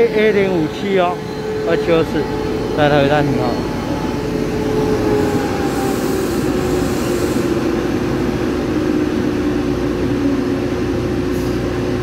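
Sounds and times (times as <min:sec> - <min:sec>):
train braking with squeal: 0:00.0 - 0:09.2.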